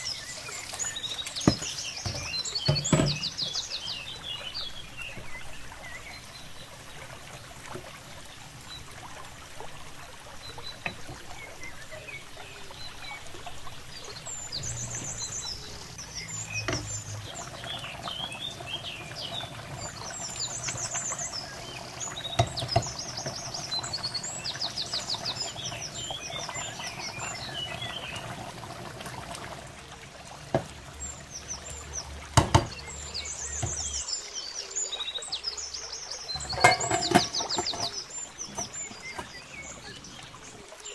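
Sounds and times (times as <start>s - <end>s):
birds chirping: 0.0s - 9.0s, 9.6s - 29.6s, 30.4s - 40.9s
pot boiling and bubbling: 0.0s - 40.9s
sharp knocks: 32.4s - 32.8s
wooden spoon stirring pot: 36.4s - 39.4s.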